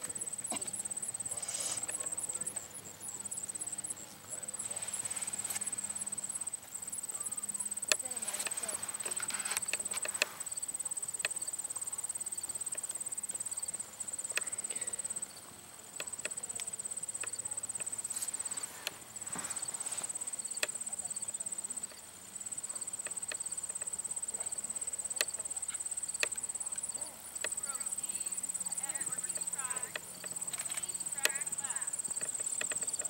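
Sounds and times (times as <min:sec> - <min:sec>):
insects trilling: 0:00.0 - 0:33.0
faint clicks: 0:07.6 - 0:10.5, 0:14.3 - 0:15.2, 0:16.0 - 0:19.0, 0:22.6 - 0:33.0.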